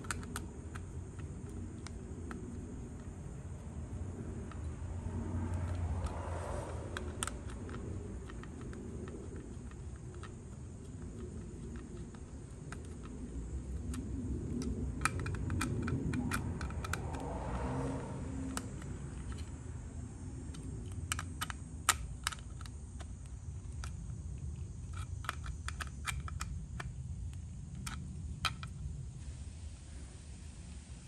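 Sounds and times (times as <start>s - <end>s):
screwdriver clicking on plastic: 0.0s - 3.0s, 7.0s - 17.0s.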